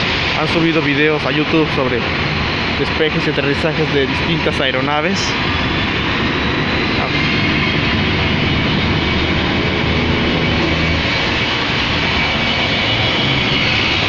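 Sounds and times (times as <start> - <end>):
faint high engine whine: 0.0 - 14.0
jet engines rushing: 0.0 - 14.0.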